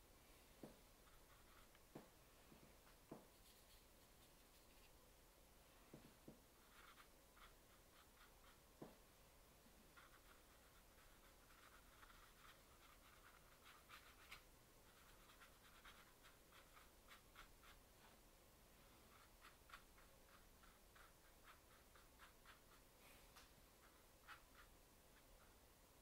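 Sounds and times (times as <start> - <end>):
paintbrush tapping on paper: 0.6 - 2.2, 2.9 - 3.8, 5.9 - 9.0.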